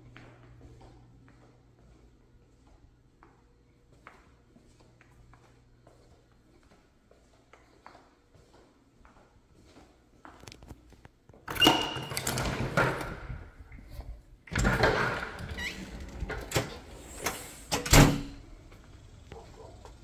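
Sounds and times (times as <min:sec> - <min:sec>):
door squeak: 0:11.5 - 0:12.8, 0:14.5 - 0:18.4
loud door thunk: 0:17.8 - 0:18.4.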